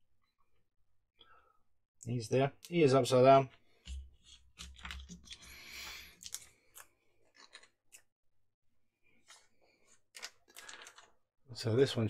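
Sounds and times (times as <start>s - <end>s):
rustle of small parts: 9.3s - 11.2s.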